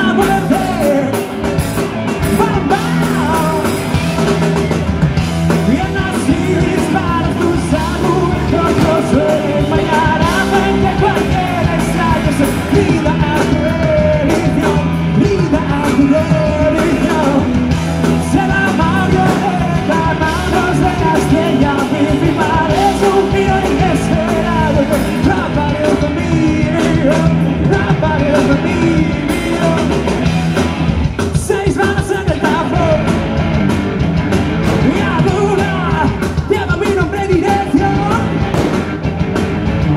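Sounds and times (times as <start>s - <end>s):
person singing into microphone: 0.0s - 1.3s, 5.6s - 30.3s, 31.3s - 33.1s, 34.8s - 38.3s
bass guitar: 0.0s - 39.9s
drum kit: 0.0s - 39.9s
electric guitars: 0.0s - 39.9s.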